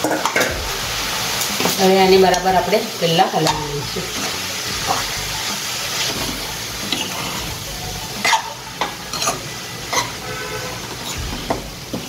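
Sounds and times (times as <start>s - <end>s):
pan sizzling: 0.0s - 12.0s
metal spoon scraping pan: 6.0s - 7.4s, 8.2s - 11.6s.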